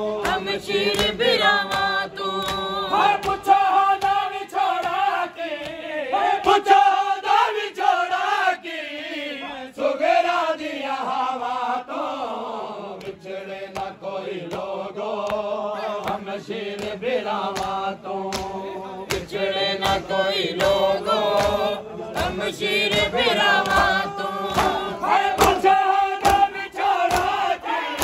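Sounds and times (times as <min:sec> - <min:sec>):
men chanting a lament: 0:00.0 - 0:28.0
hands slapping on chests: 0:00.2 - 0:06.7, 0:12.9 - 0:28.0.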